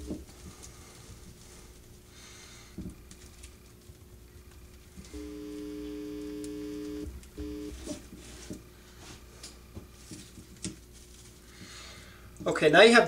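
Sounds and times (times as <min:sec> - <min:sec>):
steady electronic tone: 0:05.1 - 0:07.9.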